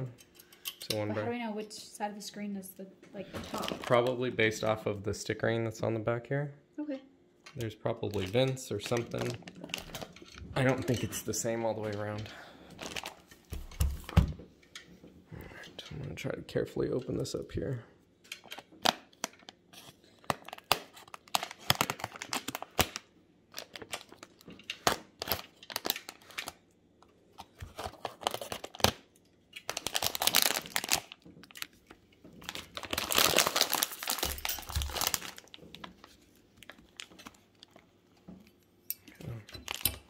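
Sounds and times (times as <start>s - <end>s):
plastic bag crinkling and tearing: 3.5s - 4.2s, 8.0s - 12.2s, 12.8s - 14.1s, 18.8s - 26.6s, 27.4s - 37.9s, 39.6s - 40.0s.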